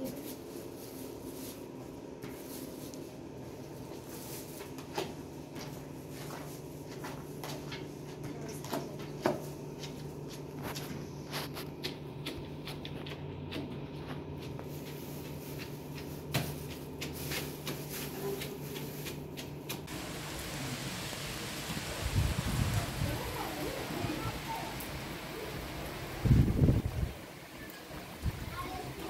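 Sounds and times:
rain hissing: 19.9 - 29.0.

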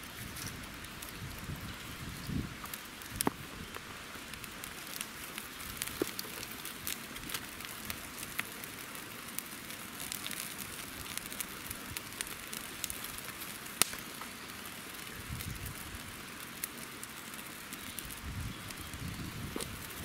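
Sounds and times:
campfire crackling and popping: 0.0 - 20.0
loud wood snap: 13.8 - 14.3.

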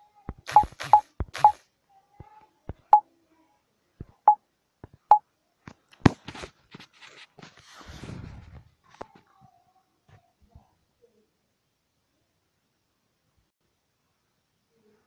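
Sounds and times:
touchscreen key press beeps: 0.5 - 1.6
rustling handling noise: 5.7 - 9.4.

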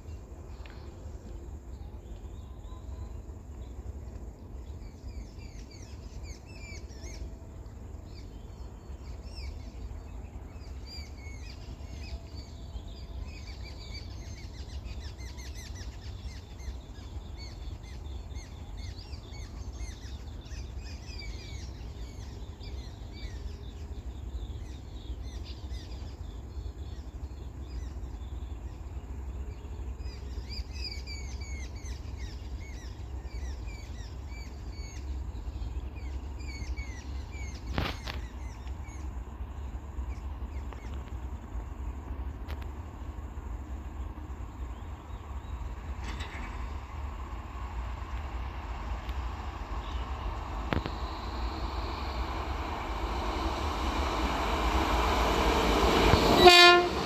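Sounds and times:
small birds chirping: 1.7 - 56.2
low rumble: 46.6 - 57.0.

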